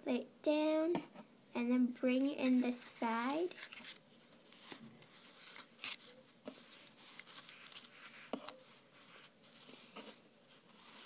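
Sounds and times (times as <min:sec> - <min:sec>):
cloth rustling: 0:02.4 - 0:11.0.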